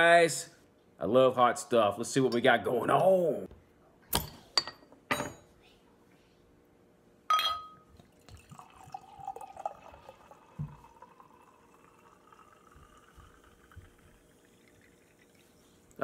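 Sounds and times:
bottle clinking on glass: 7.3 - 7.9
cider pouring into glass: 7.9 - 16.0.

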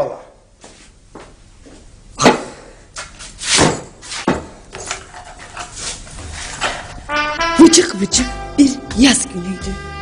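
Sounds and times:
knocks and thumps: 3.6 - 5.0.

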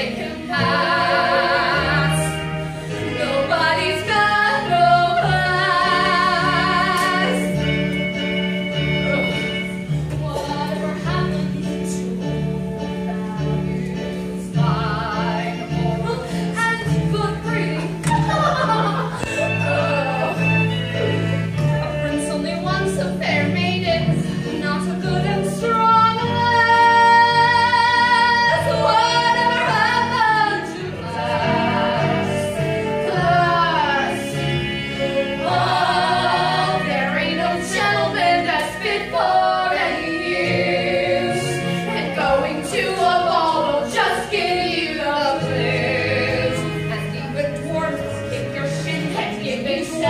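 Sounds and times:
accompanying music: 0.0 - 50.0.

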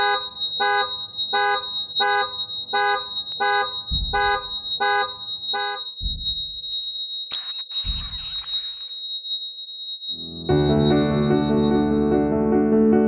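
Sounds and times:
car alarm horn honks: 0.0 - 6.2
steady high-pitched ringing tone: 0.0 - 12.1.

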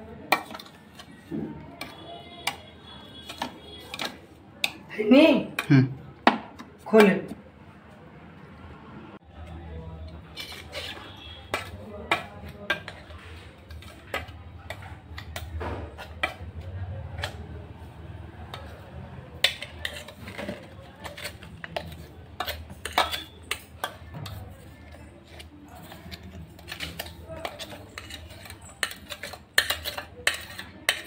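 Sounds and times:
spoon clinking in steel jar: 22.4 - 23.7.

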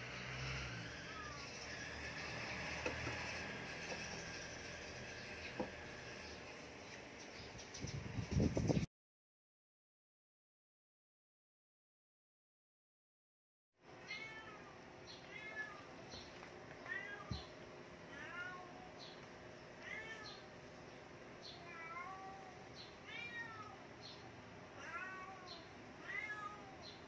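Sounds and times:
cat meowing: 14.0 - 15.9, 16.8 - 17.5, 18.1 - 18.9, 19.8 - 20.4, 21.5 - 23.8, 24.8 - 27.0.

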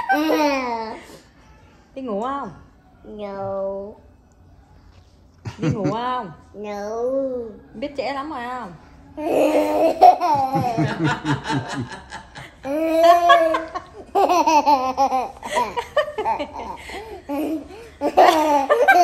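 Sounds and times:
toddler laughing: 0.0 - 1.2, 12.6 - 19.0
woman laughing: 5.5 - 6.2, 10.2 - 19.0.

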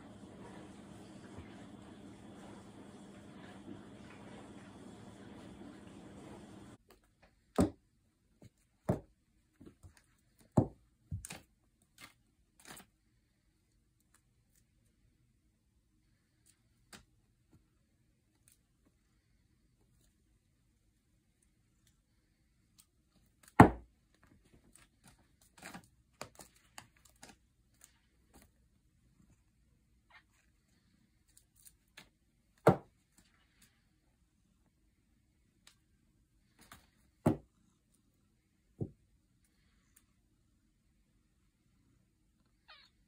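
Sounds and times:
room hiss: 0.0 - 6.8
cat rustling and scratching fabric: 0.0 - 7.5, 8.1 - 40.9.

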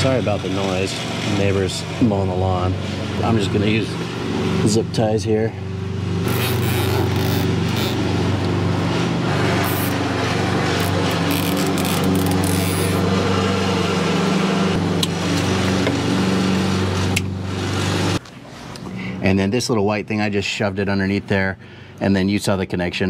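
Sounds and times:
lawn mower engine running: 0.0 - 5.0, 5.6 - 18.2.

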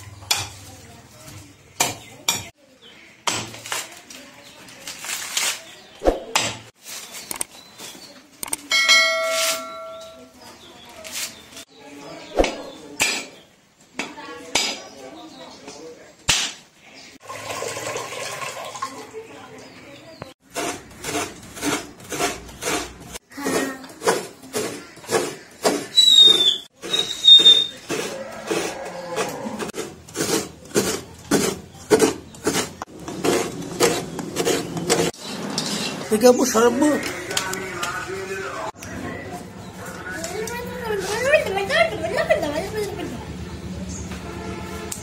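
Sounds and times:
coconut scraping rasp: 20.4 - 36.1.

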